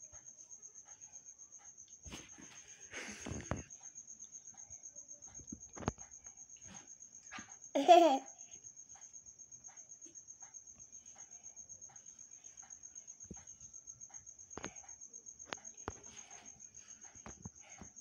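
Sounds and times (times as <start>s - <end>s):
high-pitched insect trill: 0.0s - 18.0s.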